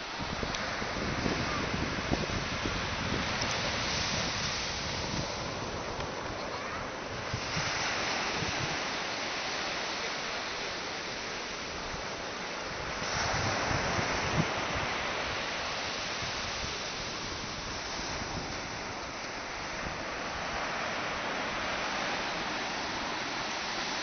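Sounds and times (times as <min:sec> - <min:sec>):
wind buffeting microphone: 0:00.0 - 0:08.9, 0:12.7 - 0:20.7
surf breaking on beach: 0:00.0 - 0:24.0.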